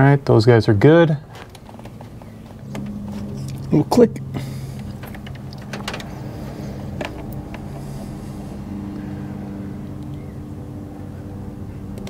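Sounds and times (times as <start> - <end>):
wires clicking and rustling: 1.3 - 8.1
motor drone: 1.8 - 12.0.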